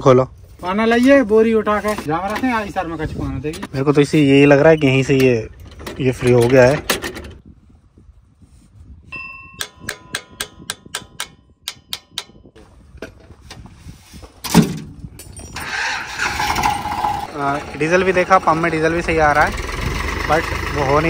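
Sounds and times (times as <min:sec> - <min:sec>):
metallic clang: 0:09.2 - 0:12.5
metal tools clinking on engine: 0:15.2 - 0:17.3.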